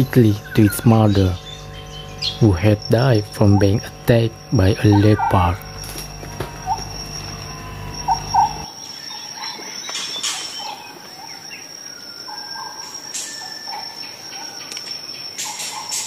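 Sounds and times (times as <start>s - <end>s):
bird chirps and calls: 0.0s - 3.8s, 6.4s - 11.5s
high insect trill: 0.0s - 16.0s.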